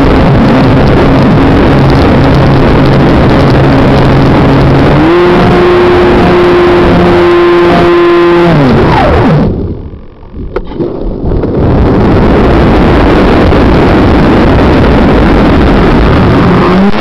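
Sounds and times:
model plane propeller hum: 0:00.0 - 0:17.0
wind rush on microphone: 0:00.0 - 0:17.0.

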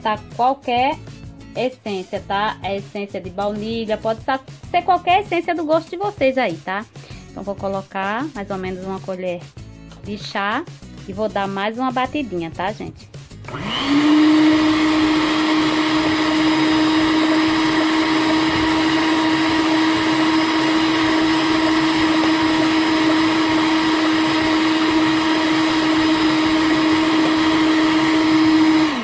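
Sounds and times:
stand mixer whipping: 0:13.5 - 0:29.0.

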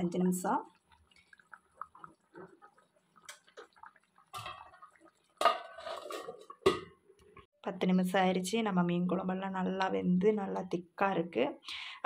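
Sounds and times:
pot lid clanking against pot: 0:05.4 - 0:06.9.

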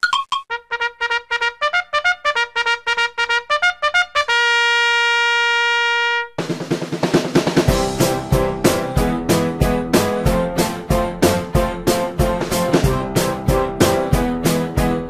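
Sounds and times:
brassy intro music: 0:00.5 - 0:15.0
tune with steady beat: 0:07.6 - 0:15.0.

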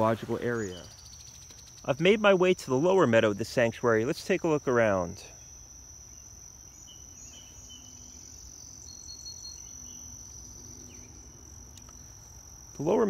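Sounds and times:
faint bird chirps: 0:00.0 - 0:02.2, 0:05.2 - 0:12.3
high-pitched insect chorus: 0:00.0 - 0:13.0.

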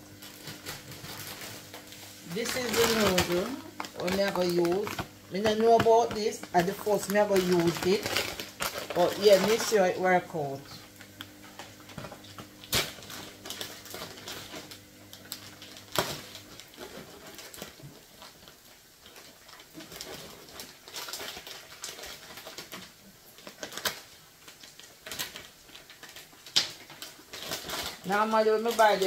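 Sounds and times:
plastic packaging crinkling: 0:00.0 - 0:29.0
plastic snapping: 0:25.0 - 0:28.0.

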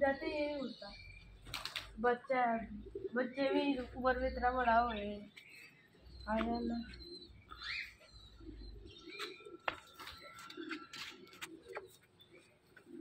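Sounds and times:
pigeons cooing softly: 0:00.0 - 0:13.0
faint bird chirps: 0:04.3 - 0:12.6.

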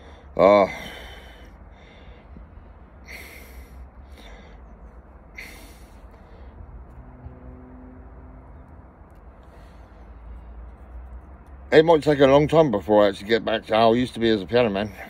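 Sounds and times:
man breathing heavily: 0:00.0 - 0:07.0, 0:09.0 - 0:11.5.

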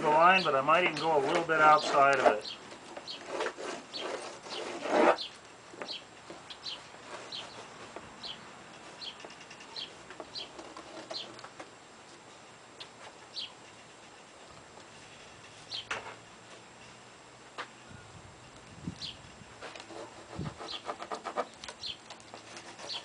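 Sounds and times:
small bird chirping: 0:03.9 - 0:11.4, 0:12.8 - 0:13.9, 0:15.6 - 0:15.9, 0:18.9 - 0:19.3, 0:21.5 - 0:22.0.

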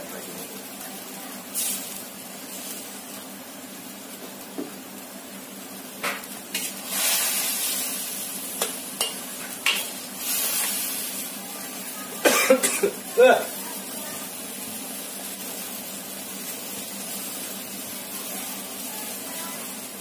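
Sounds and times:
vegetables sizzling in a wok: 0:00.0 - 0:20.0
spatula scraping a wok: 0:06.5 - 0:11.4
spatula clinking on a wok: 0:08.6 - 0:09.9.

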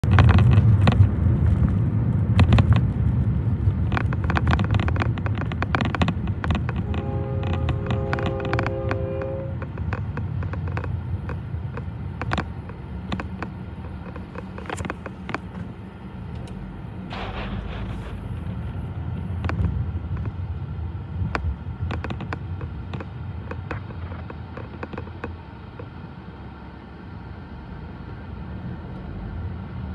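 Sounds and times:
low rumble inside car: 0:00.0 - 0:29.9
clicks and knocks: 0:03.8 - 0:15.7
freight train passing: 0:06.2 - 0:13.8.

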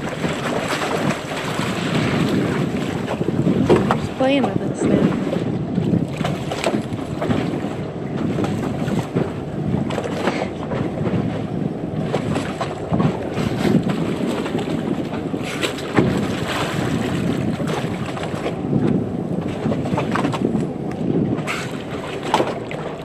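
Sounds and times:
water splashing: 0:00.0 - 0:09.1, 0:21.4 - 0:23.0
water rushing along boat: 0:00.0 - 0:23.0
wind buffeting microphone: 0:00.0 - 0:23.0.

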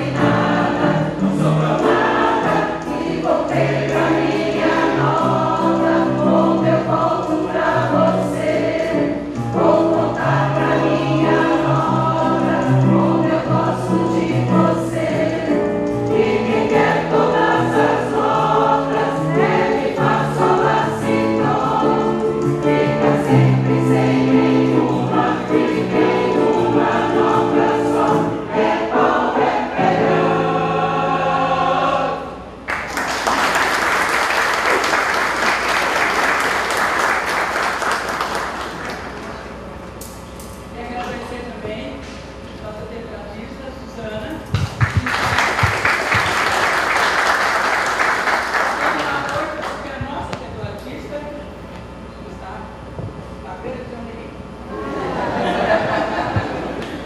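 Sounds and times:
mixed choir singing: 0:00.0 - 0:38.6, 0:54.7 - 0:57.0.

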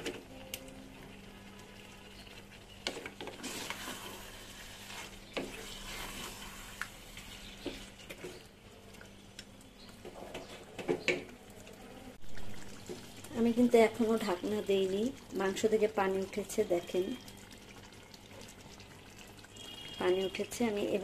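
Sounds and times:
meat sizzling in oil: 0:02.2 - 0:08.5
spatula scraping pan: 0:02.7 - 0:08.5.

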